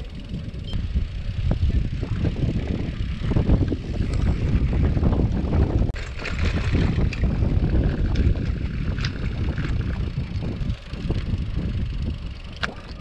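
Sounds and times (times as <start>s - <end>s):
bike tyres on rough asphalt: 0.0s - 13.0s
crackling tyre noise: 0.0s - 13.0s
wind rumbling on microphone: 0.0s - 13.0s.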